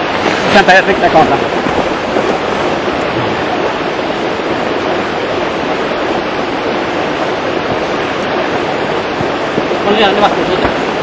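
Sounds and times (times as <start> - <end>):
fast-flowing river rushing: 0.0 - 11.0.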